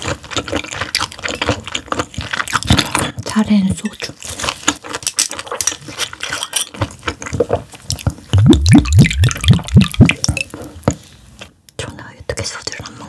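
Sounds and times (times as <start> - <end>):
wet chewing and mouth clicks: 0.0 - 11.6
low sounds rising in pitch: 8.4 - 10.2.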